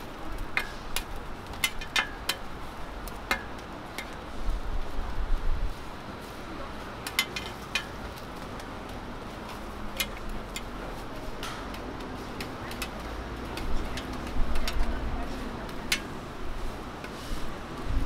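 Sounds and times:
metal spatulas clicking on griddle: 0.0 - 4.2, 7.0 - 8.7, 9.8 - 16.2.

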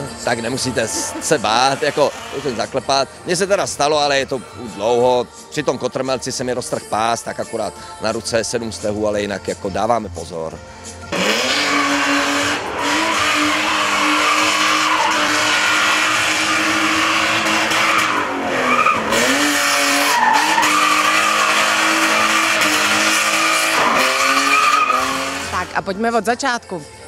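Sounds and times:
car engine at high revs: 0.0 - 3.0, 11.0 - 25.8
tyres squealing on asphalt: 0.0 - 5.6, 11.1 - 25.9.

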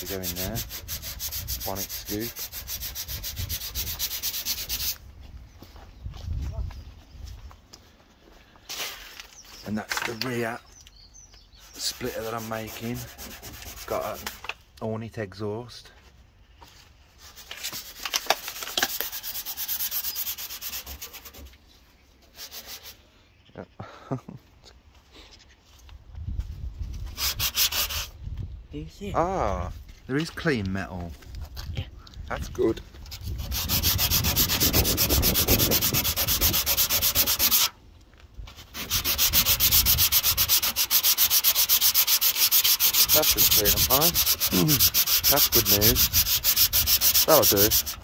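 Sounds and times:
hand sanding metal: 0.0 - 5.0, 11.6 - 14.4, 17.2 - 21.5, 22.2 - 23.0, 27.1 - 28.1, 33.1 - 37.8, 38.5 - 48.0.

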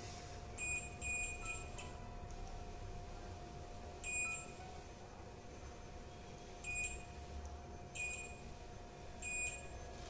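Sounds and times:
faint steady hum: 0.0 - 10.0
multimeter high-pitched beeps: 0.6 - 2.1, 4.0 - 6.0, 6.6 - 10.0.

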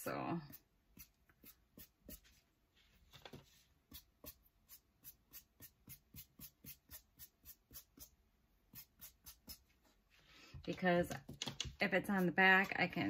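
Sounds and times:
paintbrush strokes: 0.5 - 10.4.

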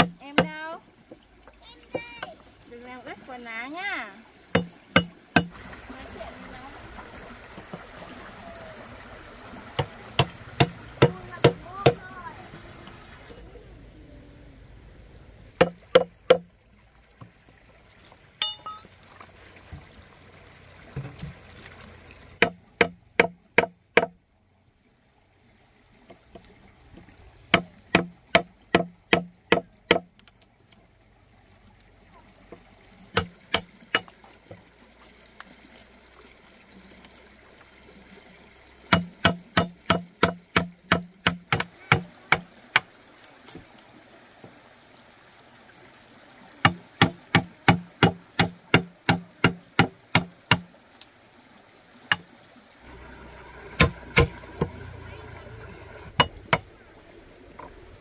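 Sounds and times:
hand tool knocking wood: 0.0 - 0.6, 4.5 - 5.5, 9.8 - 12.0, 15.6 - 16.4, 22.4 - 24.2, 27.5 - 30.1, 38.9 - 42.9, 46.6 - 50.7, 53.8 - 54.7, 56.2 - 56.7
faint running water: 0.0 - 58.0.

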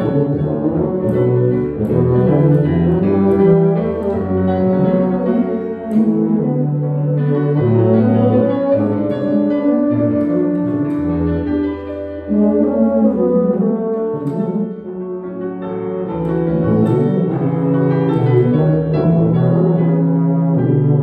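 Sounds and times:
piano chords: 0.0 - 21.0
tuba low notes: 0.0 - 21.0.

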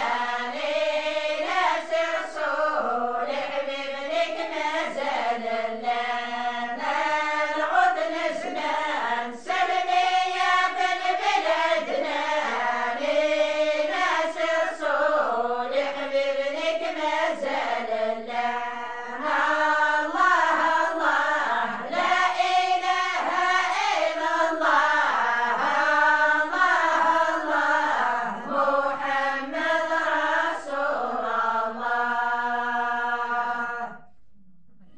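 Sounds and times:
women singing unaccompanied: 0.0 - 34.1.

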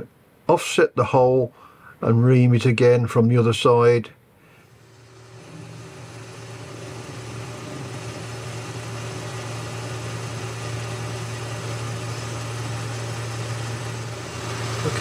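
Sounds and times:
metal lathe humming: 4.6 - 15.0
lathe tool cutting metal: 4.7 - 15.0.

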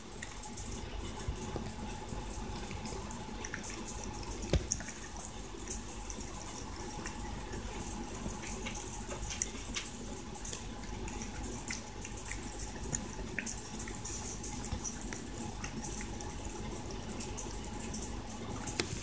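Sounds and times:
cat chewing wet food: 0.0 - 19.0.

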